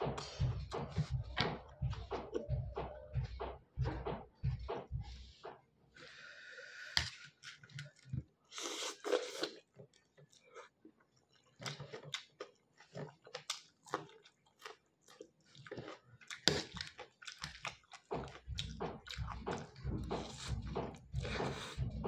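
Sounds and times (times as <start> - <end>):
person chewing noodles: 6.8 - 22.0.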